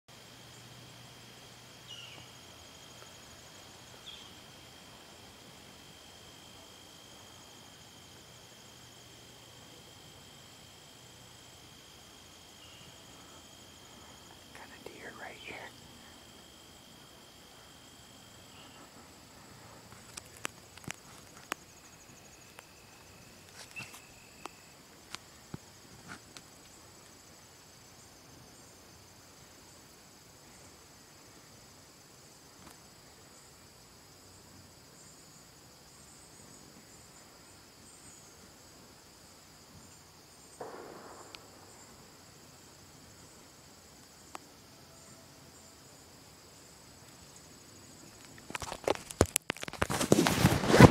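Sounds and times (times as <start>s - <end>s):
insects chirring: 0.1s - 50.9s
handling clicks and rustles: 48.0s - 50.9s.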